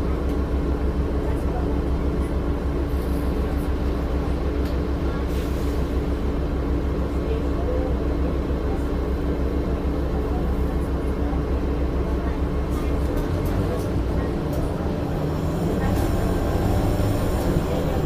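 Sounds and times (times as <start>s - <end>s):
bus diesel engine running: 0.0s - 18.0s.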